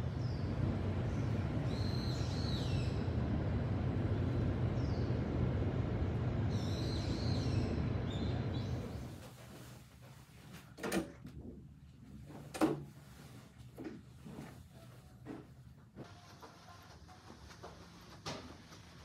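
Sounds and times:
birds calling: 0:00.0 - 0:03.3, 0:06.4 - 0:09.1
city traffic hum: 0:00.0 - 0:09.3.

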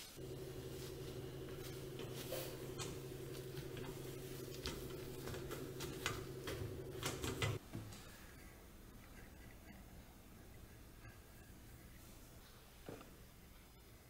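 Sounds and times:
cloth wiping glass cooktop: 0:00.0 - 0:07.6
steady low hum: 0:00.0 - 0:07.6.

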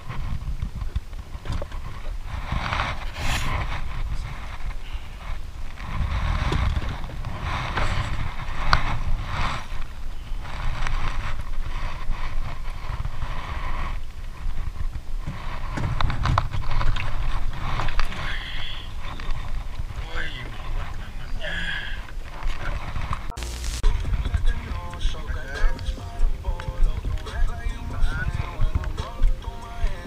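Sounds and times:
wind buffeting microphone: 0:00.0 - 0:30.0.

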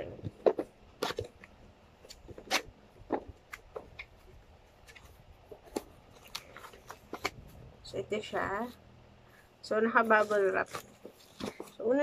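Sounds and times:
cardboard packaging rustling: 0:00.4 - 0:07.7, 0:10.1 - 0:12.0.

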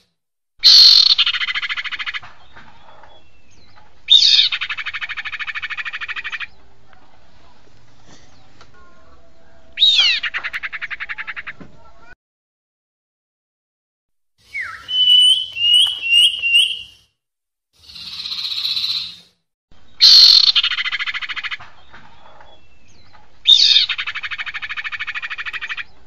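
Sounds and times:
rapid rattling bird trills: 0:14.5 - 0:17.0, 0:17.8 - 0:19.3, 0:20.0 - 0:25.9
bird chirps: 0:14.5 - 0:17.1, 0:17.8 - 0:19.3.

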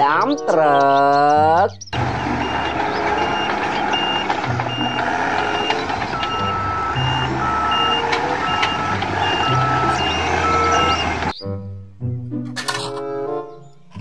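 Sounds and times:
dump truck rumble: 0:01.9 - 0:11.4
reversing alarm beeping: 0:02.0 - 0:11.4.

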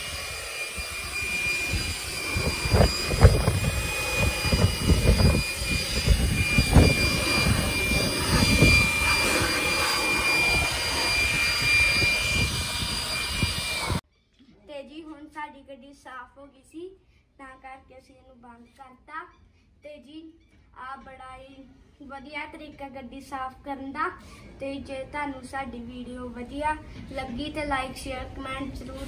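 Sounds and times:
air rushing in gusts: 0:00.0 - 0:14.0
electric blower motor whine: 0:00.0 - 0:14.0.

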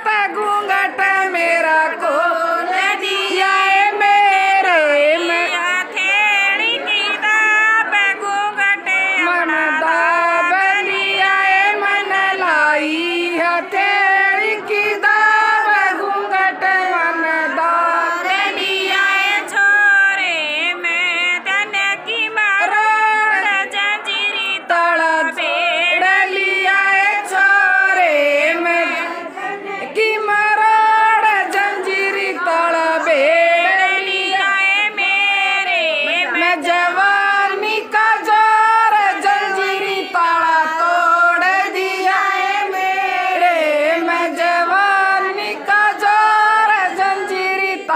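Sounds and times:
women singing: 0:00.0 - 0:47.9.

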